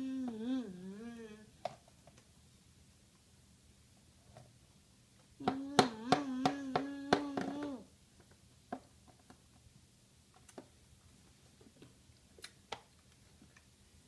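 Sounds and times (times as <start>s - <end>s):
child singing held note: 0.0s - 1.6s, 5.4s - 7.9s.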